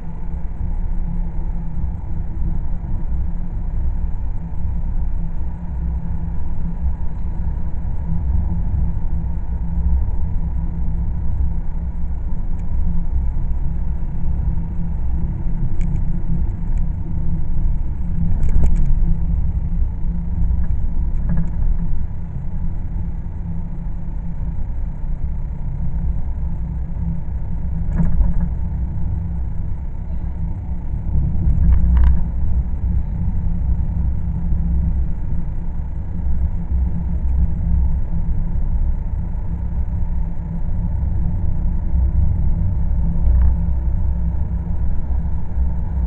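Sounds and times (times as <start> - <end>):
car engine and tyre noise: 0.0 - 46.0
light clicks and rattles: 15.7 - 17.0, 18.0 - 19.2, 20.5 - 22.0, 27.8 - 28.6, 31.1 - 32.5.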